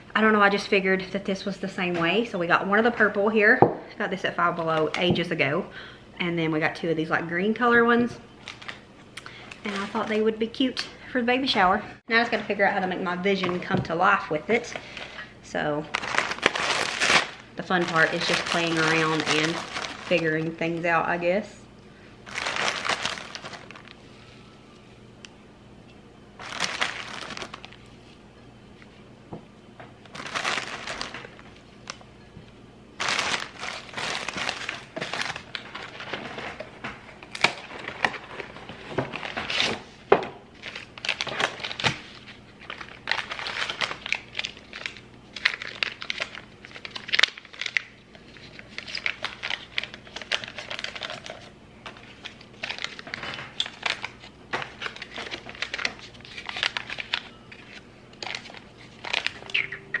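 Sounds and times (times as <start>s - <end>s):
paper crinkling and rustling: 15.9s - 20.6s, 22.3s - 24.5s, 26.4s - 28.2s, 30.0s - 32.0s, 33.0s - 39.9s, 40.6s - 59.6s.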